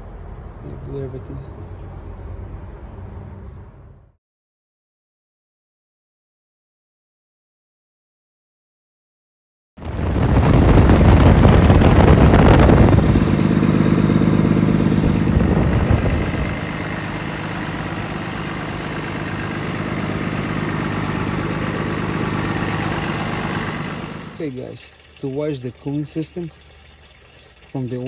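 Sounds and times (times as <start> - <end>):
diesel engine idling: 9.8 - 24.5.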